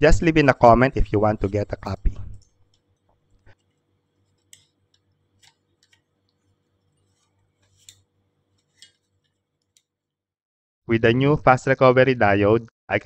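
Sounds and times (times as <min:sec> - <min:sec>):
heatsink clicking on circuit board: 0:01.2 - 0:10.0.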